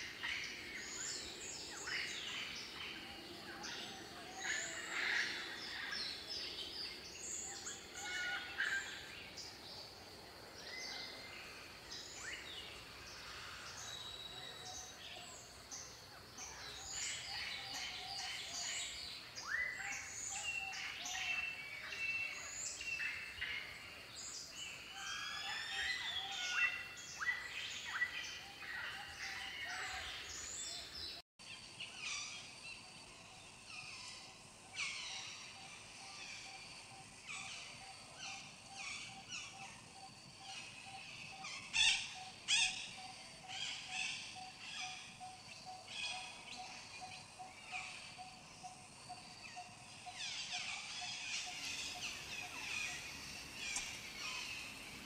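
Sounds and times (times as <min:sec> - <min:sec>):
birds chirping and singing: 0:00.0 - 0:31.2, 0:31.8 - 0:55.0.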